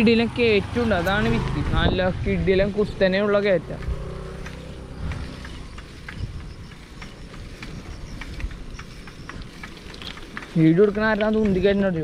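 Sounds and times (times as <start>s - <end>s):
wind and rolling rumble: 0.0s - 12.0s
bicycle clicks and ticks: 2.5s - 12.0s.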